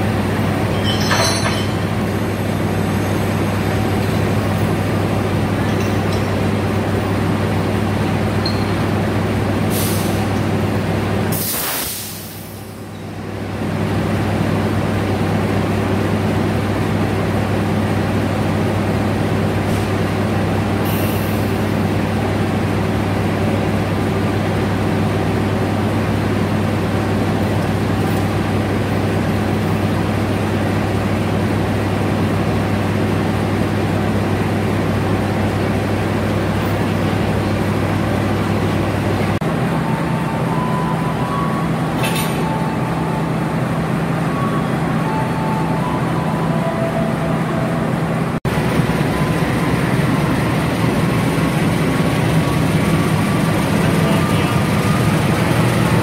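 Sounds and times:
locomotive idling: 0:00.0 - 0:56.0
compressed air hissing: 0:11.3 - 0:12.8.

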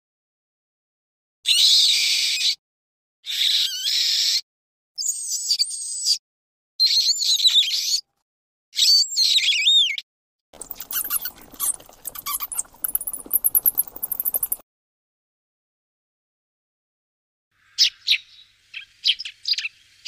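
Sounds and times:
bat clicks and chirps: 0:10.6 - 0:14.6
bat squeaking: 0:10.6 - 0:14.6.

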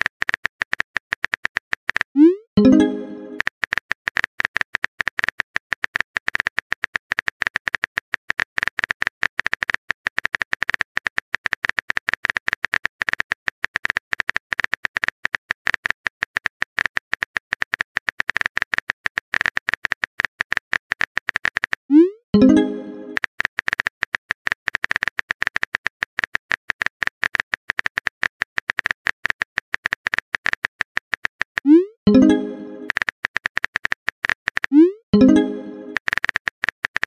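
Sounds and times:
phone keyboard typing clicks: 0:00.0 - 0:37.0.

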